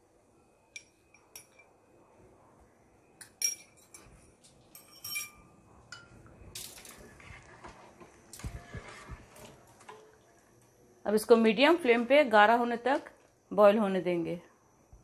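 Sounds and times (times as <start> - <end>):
metal utensils clinking on dishes: 3.4 - 4.1, 4.7 - 7.0
ladle stirring in pot: 4.8 - 10.7.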